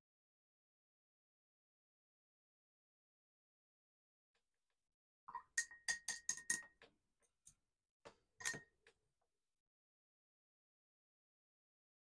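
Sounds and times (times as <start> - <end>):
paintbrush clinking on container: 5.3 - 6.9, 8.4 - 8.8.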